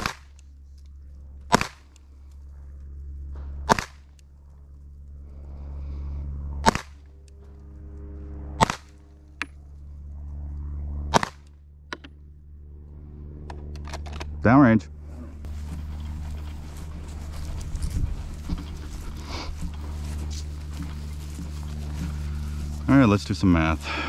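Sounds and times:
handgun shots: 0:01.5 - 0:01.8, 0:03.7 - 0:04.0, 0:06.6 - 0:07.0, 0:08.6 - 0:08.9, 0:11.1 - 0:11.4.

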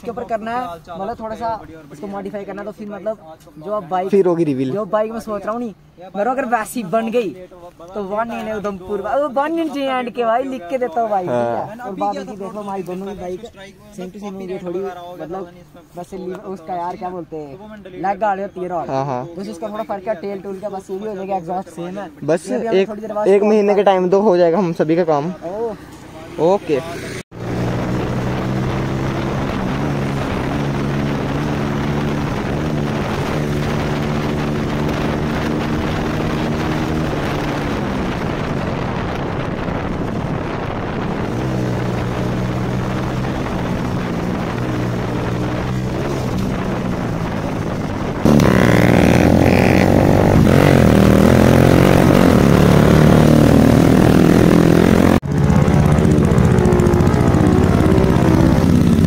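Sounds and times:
motorcycle engine running: 0:26.4 - 0:59.0.

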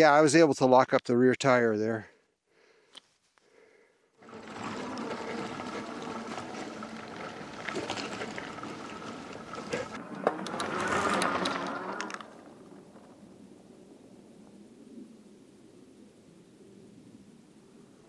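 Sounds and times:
electric bike motor hum: 0:04.2 - 0:13.8
tyres on grass and dirt: 0:04.2 - 0:13.8.

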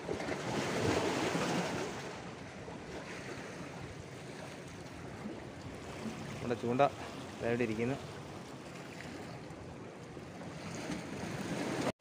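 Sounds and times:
sea surf washing against rocks: 0:00.0 - 0:08.3, 0:10.6 - 0:11.9.

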